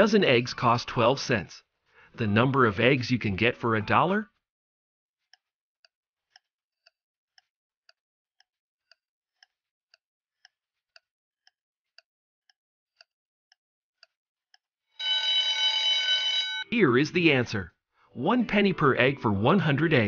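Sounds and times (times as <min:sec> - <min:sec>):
faint clock ticks: 0:05.3 - 0:14.7
loud alarm ring: 0:15.0 - 0:16.7.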